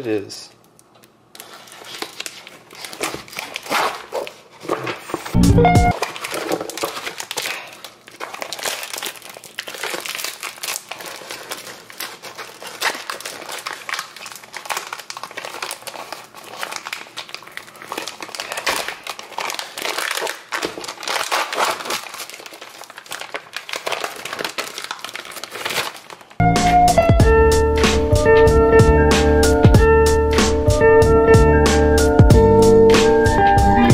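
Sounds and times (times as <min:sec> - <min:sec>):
plastic packaging crinkling: 0:00.6 - 0:26.4.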